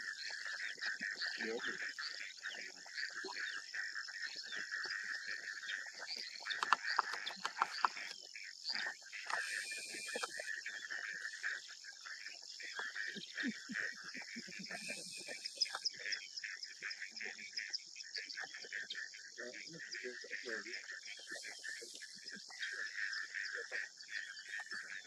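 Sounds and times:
frogs and insects trilling: 0.0 - 25.0
short chirps and ticks: 6.1 - 8.2, 9.2 - 10.5.

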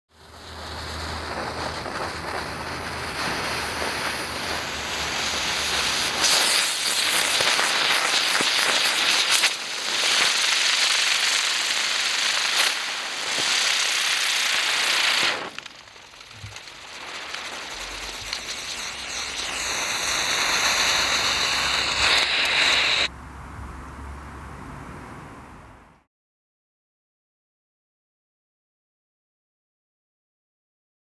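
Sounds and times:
firework hissing and spraying sparks: 0.1 - 23.1.

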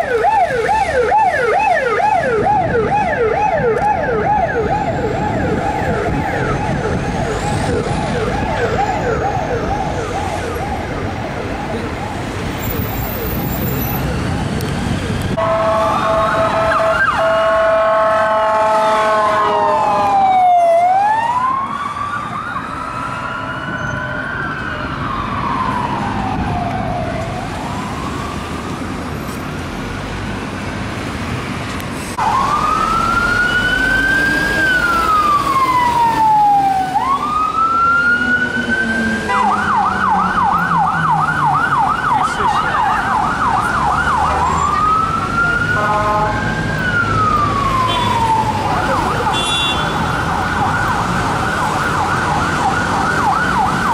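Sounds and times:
emergency vehicle siren: 0.0 - 31.4, 32.1 - 53.9
city traffic: 0.0 - 53.9.

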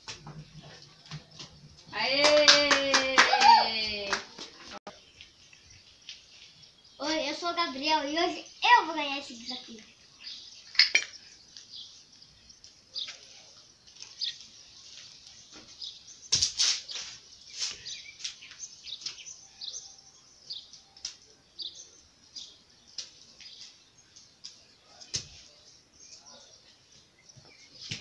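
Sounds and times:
small birds chirping: 0.0 - 2.6, 4.5 - 28.0.

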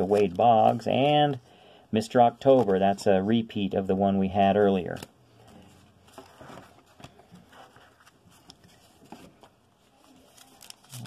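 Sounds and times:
rustling of cards and foil pack: 0.0 - 11.0.

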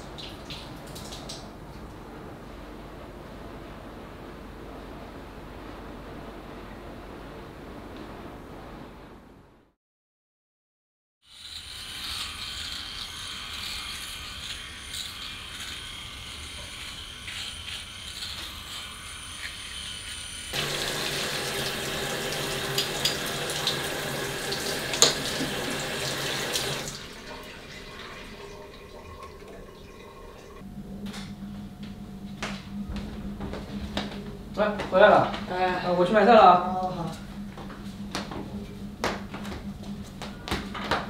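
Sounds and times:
tap water running into sink: 20.6 - 30.6.

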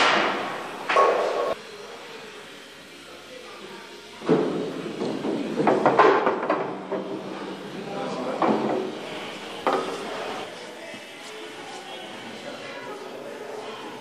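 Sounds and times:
people talking: 7.2 - 14.0.

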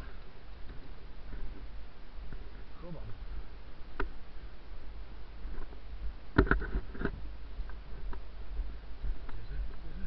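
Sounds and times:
camera handling rumble: 6.3 - 7.2.

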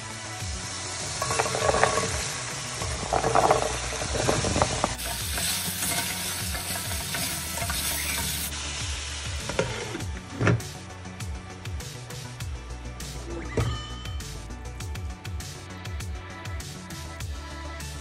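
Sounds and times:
vegetables sizzling in a pan: 0.0 - 10.1.

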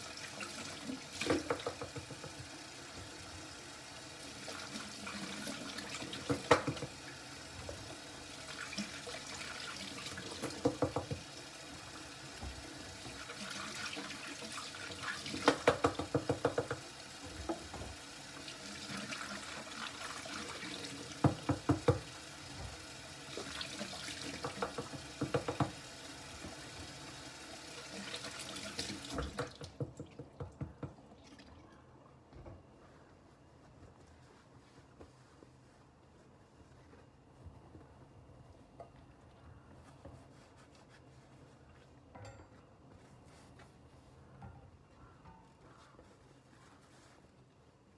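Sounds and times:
tap water running into sink: 0.0 - 31.5.

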